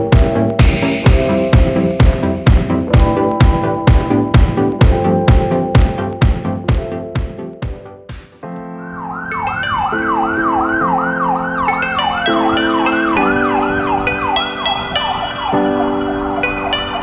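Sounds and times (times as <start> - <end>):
background music with held chords: 0.0 - 17.0
ambulance siren yelping: 8.8 - 17.0.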